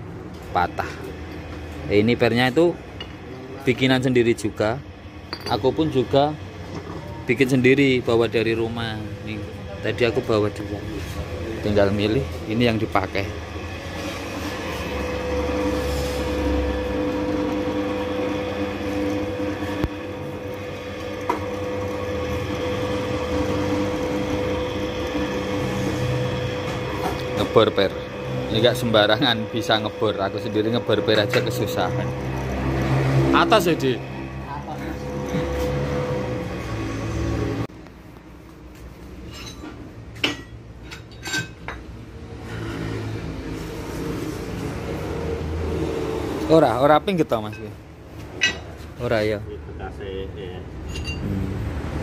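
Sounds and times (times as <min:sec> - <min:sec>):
drill press drilling steel: 0:13.4 - 0:37.6.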